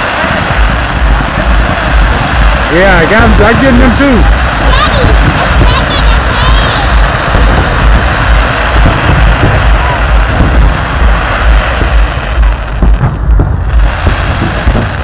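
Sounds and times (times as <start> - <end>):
fireworks booming: 0.0 - 15.0
fireworks cracks: 0.0 - 15.0
crowd noise: 4.2 - 12.7.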